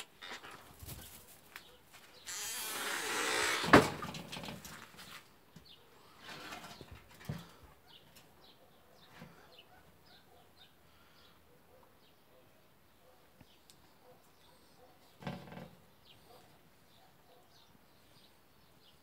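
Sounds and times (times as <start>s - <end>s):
rustling handling noise: 0.0s - 2.2s.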